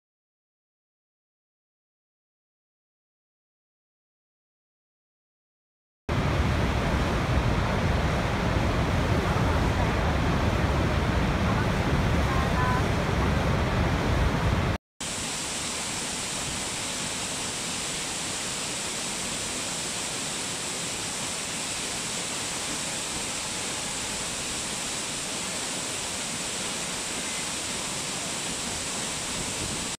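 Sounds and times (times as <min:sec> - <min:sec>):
waterfall rushing: 0:06.1 - 0:29.9.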